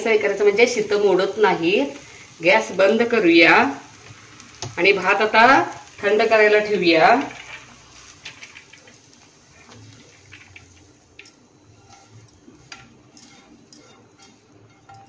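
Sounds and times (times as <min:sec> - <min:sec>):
spatula scraping frying pan: 0:00.6 - 0:10.9, 0:11.6 - 0:15.0.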